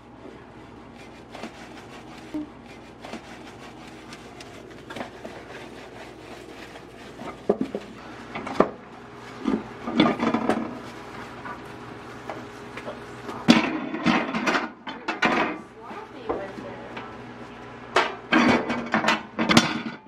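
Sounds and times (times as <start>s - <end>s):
sponge wiping microwave inside: 0.0s - 14.6s, 15.6s - 17.7s.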